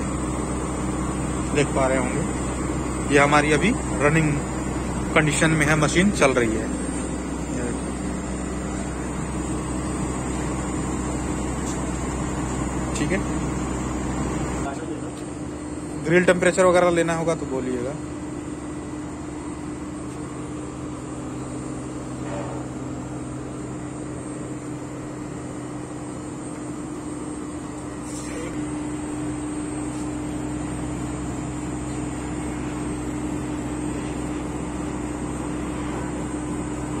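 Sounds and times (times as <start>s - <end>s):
compressor and fans whirring: 0.0s - 37.0s.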